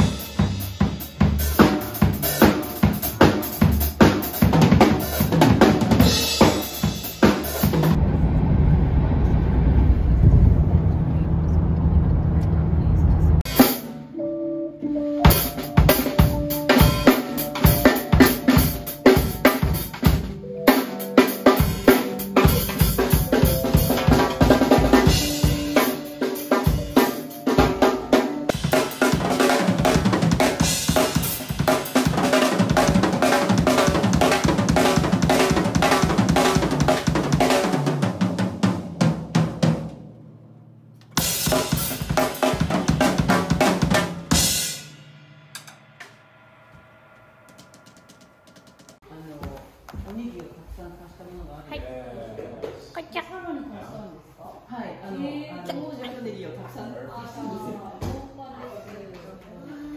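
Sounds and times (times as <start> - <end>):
drum kit played fast: 0.0 - 8.0, 13.4 - 14.2, 15.1 - 49.1.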